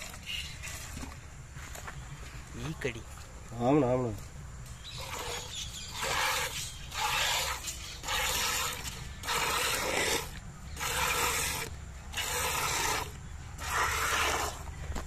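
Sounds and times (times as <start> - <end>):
milk squirting into metal pail: 5.0 - 14.6.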